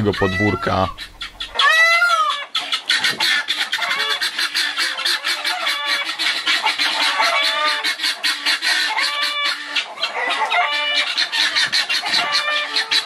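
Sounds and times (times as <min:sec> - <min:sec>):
chickens clucking: 0:00.0 - 0:13.0
drawn-out bird calls: 0:00.0 - 0:13.0.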